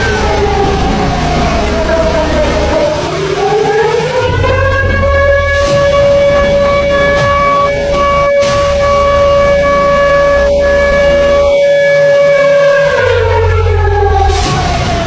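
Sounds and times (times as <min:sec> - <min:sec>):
low rumble: 0:00.0 - 0:03.5, 0:04.1 - 0:11.5
warning siren wailing: 0:00.0 - 0:15.0.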